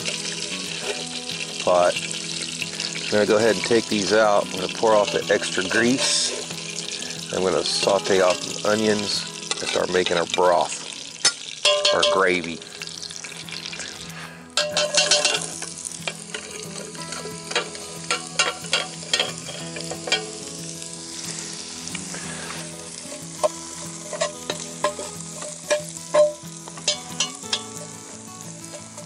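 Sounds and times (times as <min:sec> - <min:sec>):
onions sizzling in hot fat: 0:00.0 - 0:29.0
spatula scraping against iron: 0:13.6 - 0:20.3, 0:22.1 - 0:27.9.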